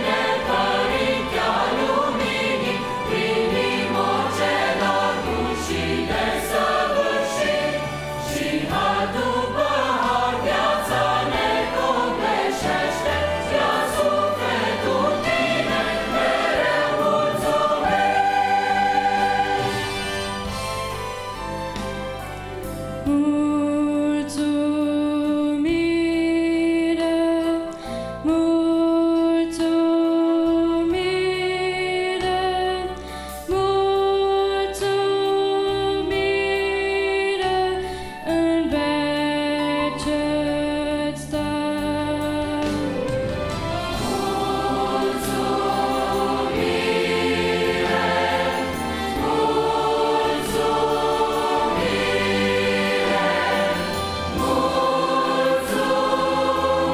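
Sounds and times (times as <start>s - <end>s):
choir singing a hymn: 0.0s - 20.8s, 43.6s - 56.9s.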